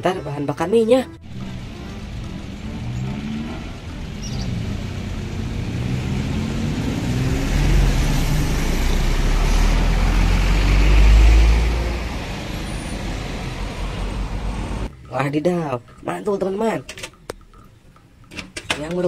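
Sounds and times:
truck passing with deep rumble: 0:01.1 - 0:14.9.

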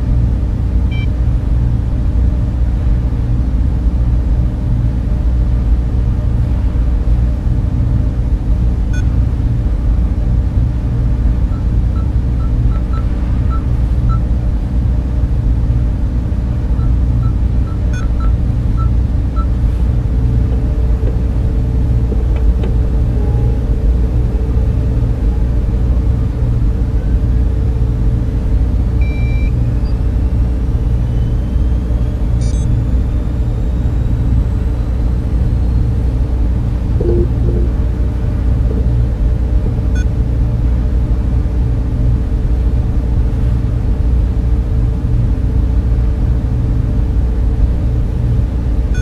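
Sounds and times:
deep electronic drone: 0:00.0 - 0:49.0
short soft beeps: 0:37.0 - 0:37.8
faint rising tones: 0:37.0 - 0:39.2.

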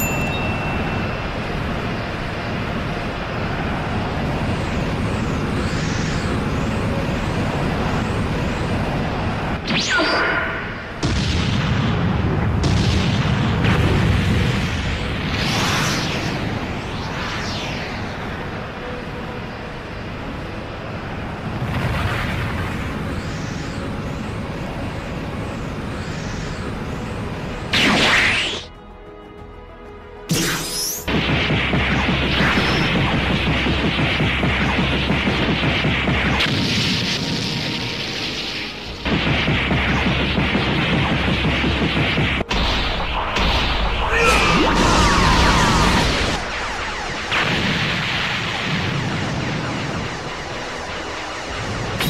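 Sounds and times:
sudden blast: 0:30.3 - 0:52.0
whistling tones sweeping: 0:48.4 - 0:52.0.

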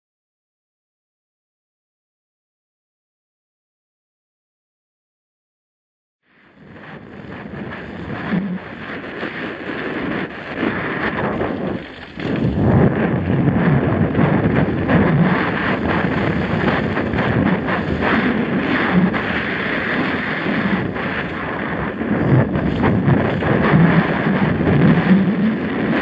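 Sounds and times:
wind rushing over microphone: 0:06.2 - 0:26.0
bike rattling: 0:07.1 - 0:26.0
tyre noise on dirt: 0:07.4 - 0:25.1.

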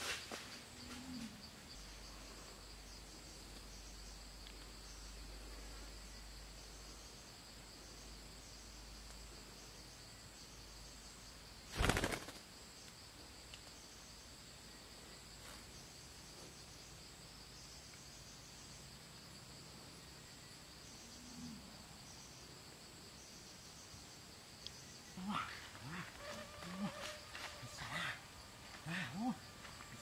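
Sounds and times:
insects droning: 0:00.0 - 0:30.0
bird wings flapping: 0:11.7 - 0:12.5.

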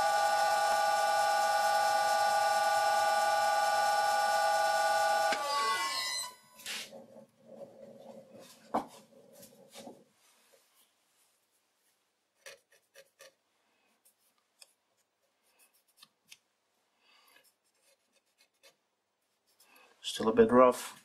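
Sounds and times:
lathe hum winding down: 0:00.0 - 0:06.5.

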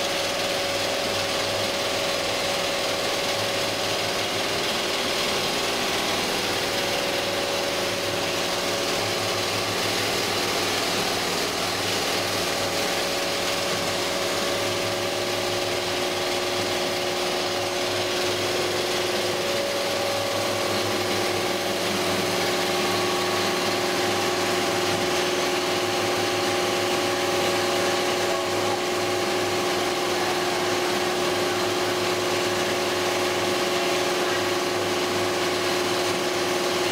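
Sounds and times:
steady machine tones: 0:00.0 - 0:36.8
quilting machine chatter: 0:00.0 - 0:36.9.

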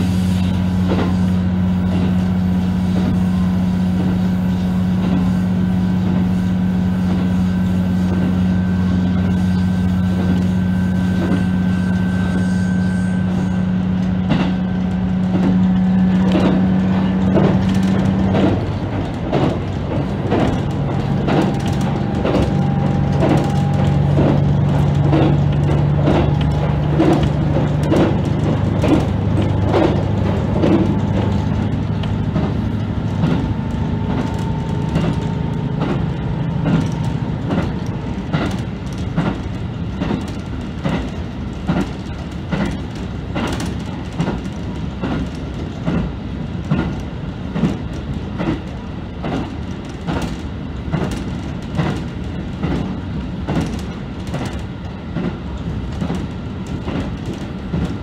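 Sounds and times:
diesel engine drone: 0:00.0 - 0:58.0
wheels clacking over rail joints: 0:13.8 - 0:58.0.

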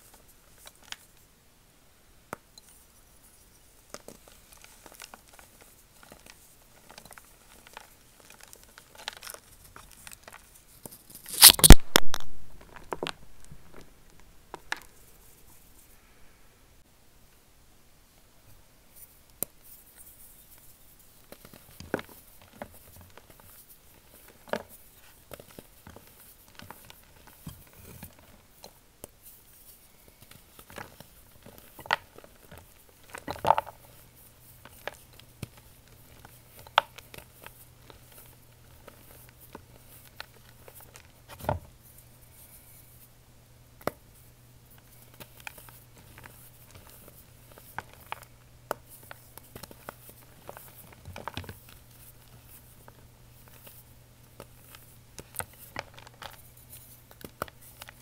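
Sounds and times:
chalk snapping and crunching: 0:03.8 - 0:13.5.

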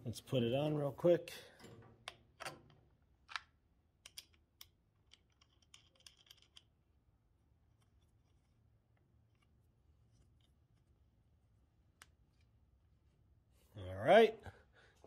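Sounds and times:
faint metallic clicks and scrapes: 0:01.5 - 0:06.8, 0:07.7 - 0:11.0.

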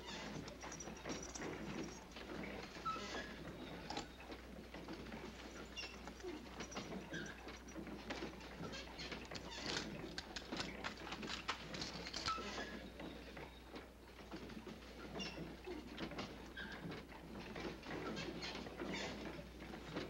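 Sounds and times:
rustling and light patter: 0:00.0 - 0:20.0.

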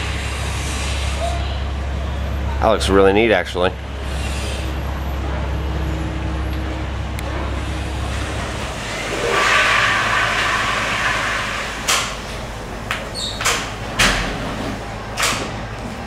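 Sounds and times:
low engine hum: 0:00.0 - 0:16.0
rushing noise: 0:03.8 - 0:12.9.

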